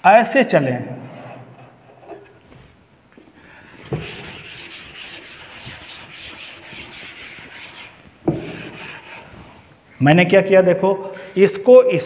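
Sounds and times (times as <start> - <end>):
duster wiping a blackboard: 3.6 - 9.8
knock: 8.2 - 8.6.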